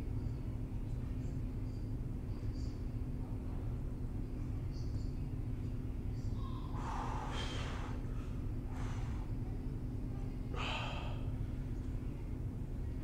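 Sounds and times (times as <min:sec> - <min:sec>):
low room hum: 0:00.0 - 0:13.0
man breathing out hard: 0:06.8 - 0:08.0.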